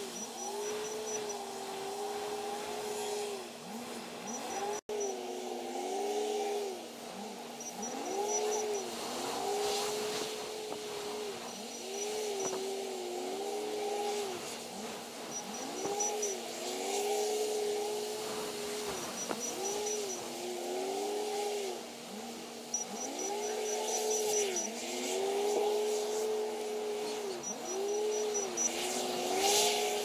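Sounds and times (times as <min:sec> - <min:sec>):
wheel loader engine revving: 0:00.0 - 0:30.0.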